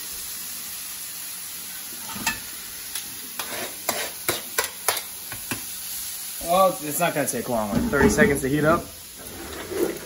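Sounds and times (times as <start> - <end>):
food sizzling in a skillet: 0.0 - 10.0
utensil clacking and scraping pan: 3.4 - 5.6, 7.6 - 8.4.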